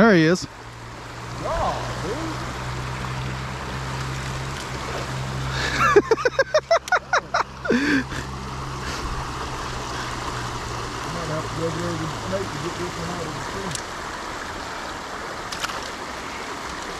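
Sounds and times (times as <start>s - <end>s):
creek water rushing: 0.0s - 16.9s.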